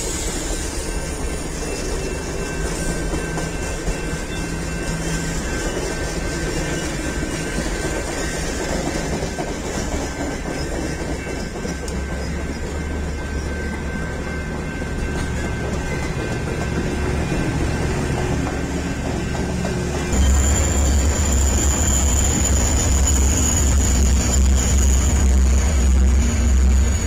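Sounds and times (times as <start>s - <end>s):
train wheels rumbling on rails: 0.0s - 27.0s
steady high tones: 11.2s - 27.0s.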